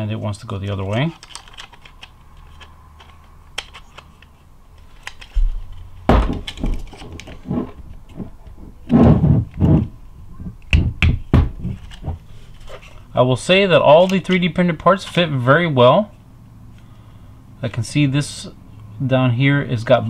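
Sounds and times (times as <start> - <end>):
plastic rubbing: 0.6 - 13.1
plastic parts clicking and knocking: 0.7 - 9.9.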